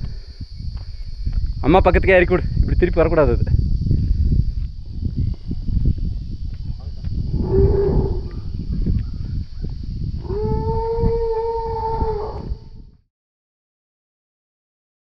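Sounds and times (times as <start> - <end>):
low rumble on microphone: 0.0 - 13.1.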